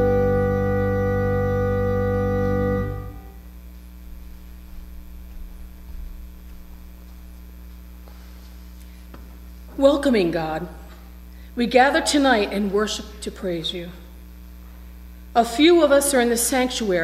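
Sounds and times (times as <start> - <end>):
organ chord: 0.0 - 5.3
low steady hum: 0.0 - 17.0.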